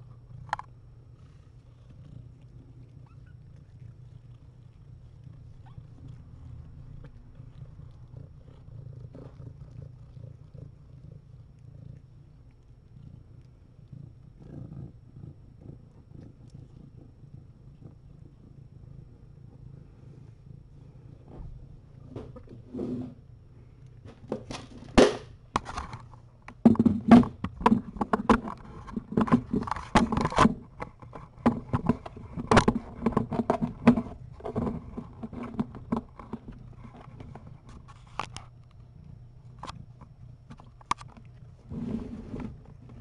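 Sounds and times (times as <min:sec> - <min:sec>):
cats scratching and rustling: 0:25.6 - 0:43.0.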